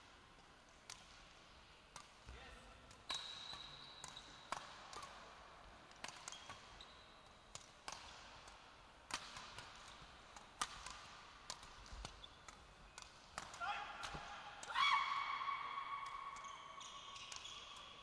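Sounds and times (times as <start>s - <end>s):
racket hitting shuttlecock: 3.0s - 5.2s, 5.9s - 6.7s, 7.5s - 14.8s.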